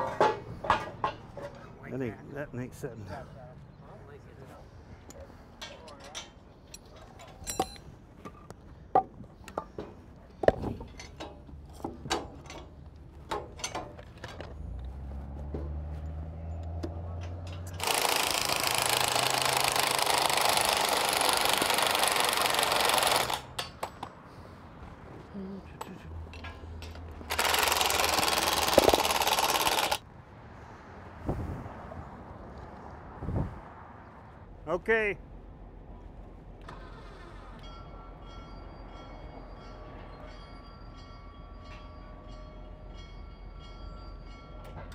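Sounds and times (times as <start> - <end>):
metal clinks and taps: 5.1 - 7.9.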